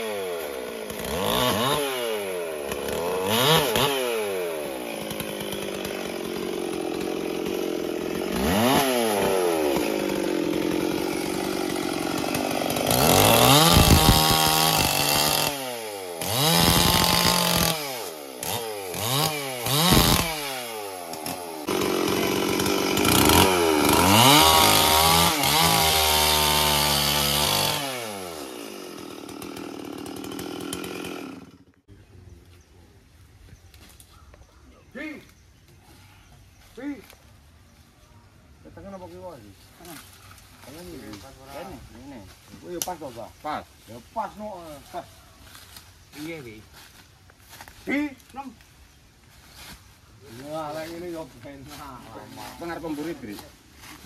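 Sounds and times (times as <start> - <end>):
chainsaw cutting wood: 0.0 - 31.9.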